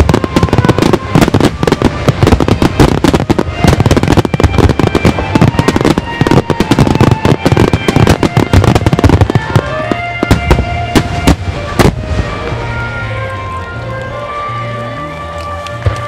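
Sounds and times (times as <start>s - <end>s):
firework shells bursting: 0.0s - 12.3s.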